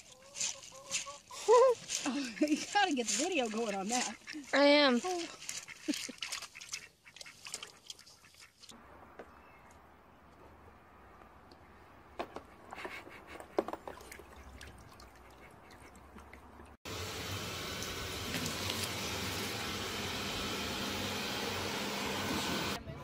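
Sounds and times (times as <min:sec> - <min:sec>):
water clicks and splashes: 0:01.8 - 0:08.8, 0:12.3 - 0:16.8, 0:17.8 - 0:19.4
robot vacuum cleaner whooshing: 0:17.4 - 0:22.8.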